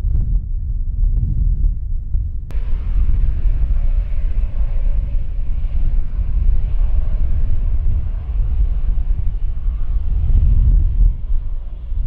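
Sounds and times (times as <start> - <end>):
wind rumbling on microphone: 0.0 - 12.0
jet engines taxiing: 2.5 - 12.0.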